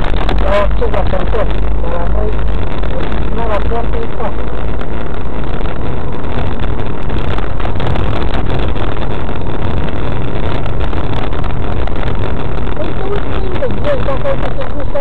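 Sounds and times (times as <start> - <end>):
car engine drone: 0.0 - 15.0
road noise: 0.0 - 15.0.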